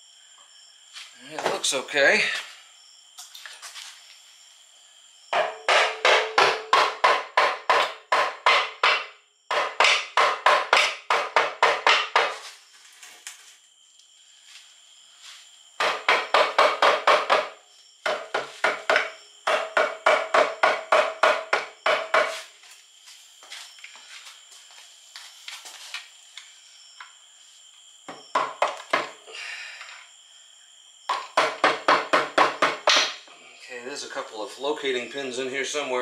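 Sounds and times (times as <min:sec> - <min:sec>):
hammer tapping on metal cover: 0:05.3 - 0:12.4, 0:15.8 - 0:22.3.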